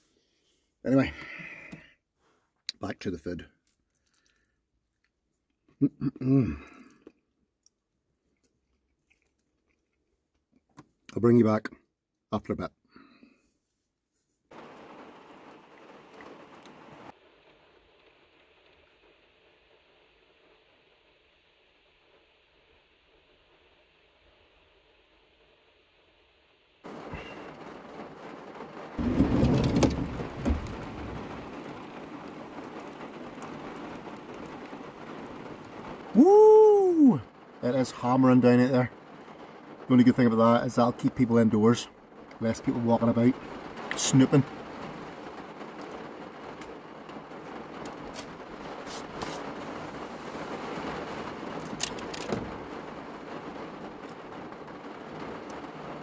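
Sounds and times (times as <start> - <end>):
heavy rain pouring: 0.9 - 2.0, 14.5 - 56.0
sharp knocks: 29.0 - 31.3.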